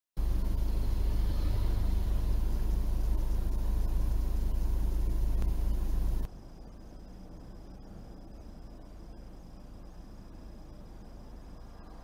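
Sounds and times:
hiss: 0.2s - 6.3s
car idling cabin rumble: 0.2s - 12.0s
faint high steady tone: 0.2s - 12.0s.

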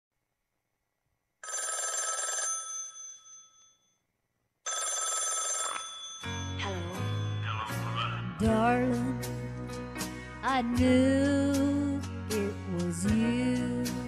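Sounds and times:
old telephone bell ringing: 1.4s - 4.0s, 4.7s - 7.4s
song music: 6.3s - 14.0s.

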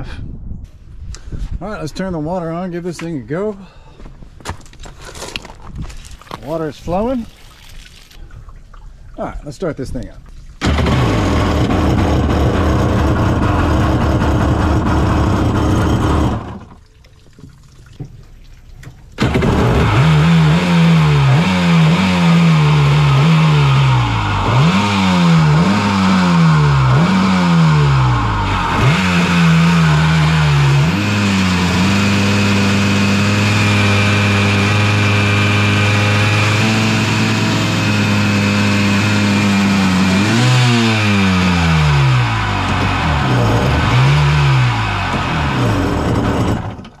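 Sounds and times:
jet ski engine revving and idling: 10.6s - 16.8s, 19.2s - 47.0s.

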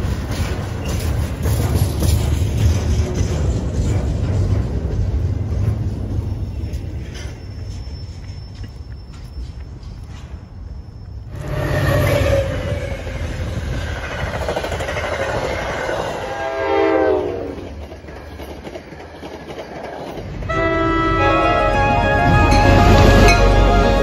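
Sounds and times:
train rumbling along rails: 0.0s - 24.0s
train horn: 16.2s - 17.6s, 20.4s - 24.0s.

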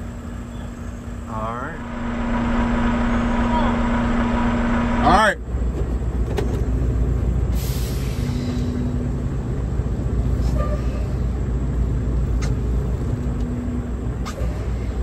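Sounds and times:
truck diesel engine running: 0.0s - 10.4s.

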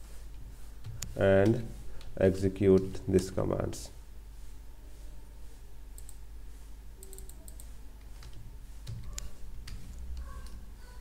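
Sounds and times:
mouse buttons clicking: 7.0s - 10.6s.

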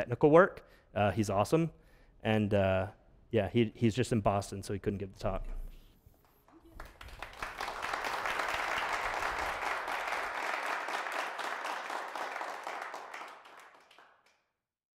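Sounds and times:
audience applauding: 6.4s - 14.4s.

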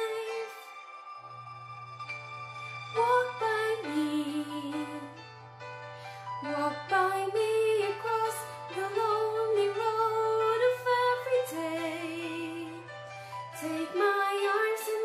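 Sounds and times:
woman singing with vibrato: 0.0s - 0.8s, 3.0s - 5.2s, 6.4s - 12.8s, 13.6s - 15.0s.

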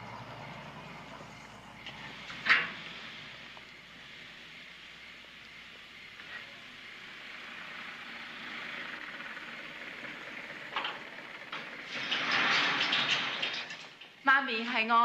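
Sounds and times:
vehicle hissing rush: 0.0s - 13.4s.

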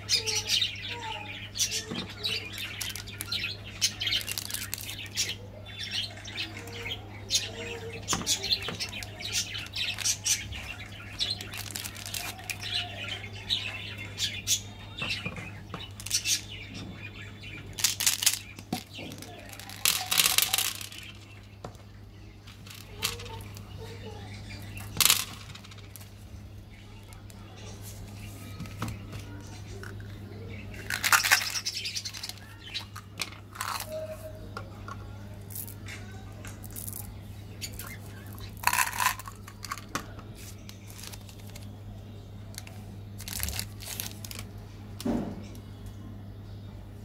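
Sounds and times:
candies clattering onto table: 4.1s - 5.1s, 11.3s - 12.7s, 17.8s - 21.8s, 22.5s - 23.6s, 24.8s - 26.1s, 30.8s - 34.0s, 37.8s - 41.7s, 42.6s - 45.3s
foil wrapper crinkling: 4.2s - 5.0s, 11.2s - 12.6s, 38.5s - 41.7s, 42.6s - 44.5s.

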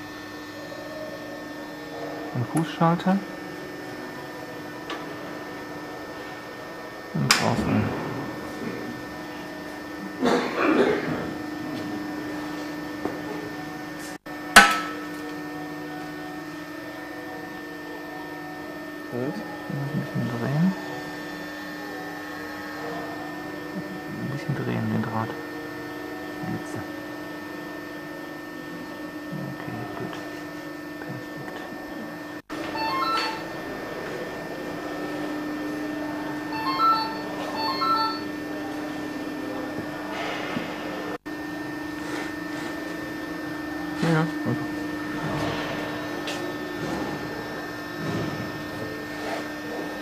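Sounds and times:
steady low hum: 0.0s - 50.0s
wire welder sharp snap: 14.6s - 15.0s.

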